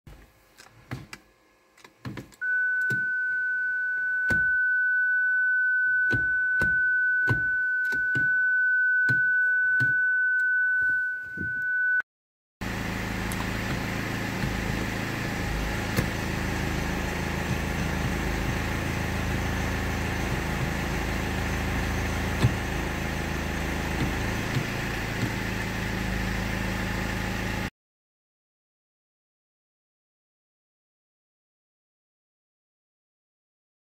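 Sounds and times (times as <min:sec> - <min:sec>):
steady high beep: 0:02.4 - 0:12.0
car engine idling: 0:12.6 - 0:27.7.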